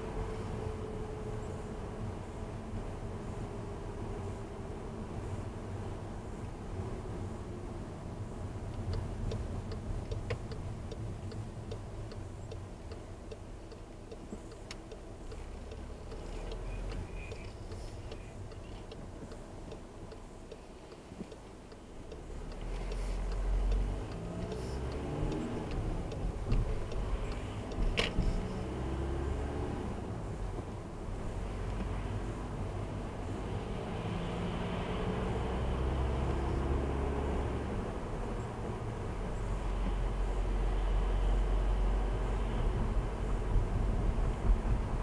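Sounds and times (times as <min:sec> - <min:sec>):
tyre and road noise: 0:00.0 - 0:45.0
turn indicator ticking: 0:08.6 - 0:29.6.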